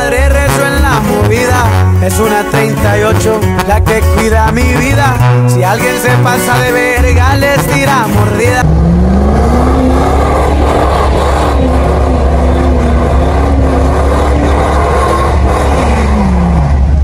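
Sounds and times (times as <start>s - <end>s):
truck engine revving: 0.0s - 17.0s
low rumble: 8.5s - 17.0s.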